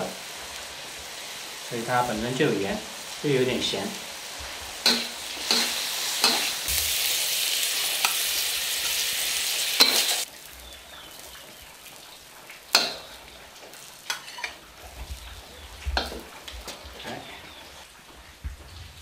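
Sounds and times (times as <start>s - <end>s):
food sizzling in a wok: 0.0s - 17.7s
metal spatula scraping wok: 4.6s - 10.2s, 14.0s - 14.6s.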